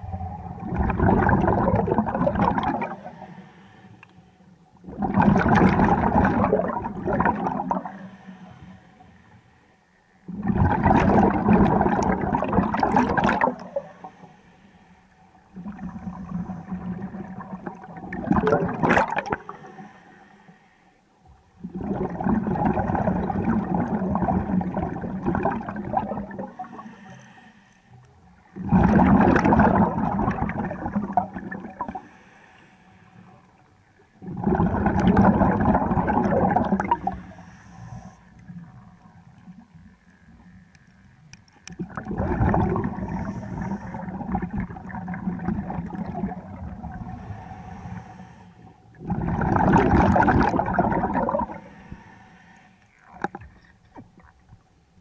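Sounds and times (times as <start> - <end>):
exhaled bubbles gurgling: 0.0 - 3.3, 4.8 - 8.1, 10.3 - 14.1, 15.4 - 19.8, 21.6 - 27.0, 28.5 - 32.1, 34.1 - 37.4, 41.6 - 47.9, 48.8 - 52.1, 53.0 - 54.7
breathing through regulator: 2.8 - 4.4, 7.7 - 10.0, 13.6 - 15.4, 19.3 - 21.1, 26.5 - 28.1, 31.8 - 33.5, 36.8 - 38.4, 42.8 - 44.3, 47.0 - 49.0, 51.2 - 53.4.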